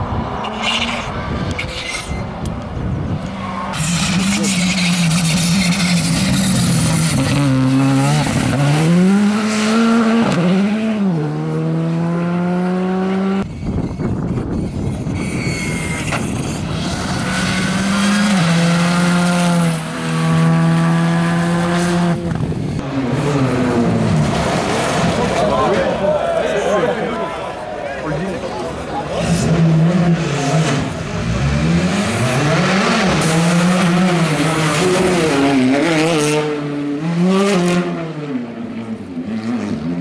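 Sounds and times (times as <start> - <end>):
rally car engines accelerating: 3.2 - 13.6, 14.2 - 26.0, 28.3 - 40.0.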